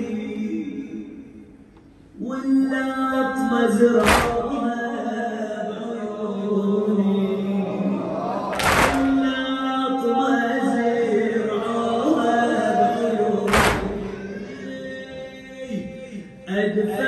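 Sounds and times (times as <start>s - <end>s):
man chanting a lament: 2.2s - 17.0s
crowd striking chests: 8.6s - 9.3s, 13.5s - 14.2s.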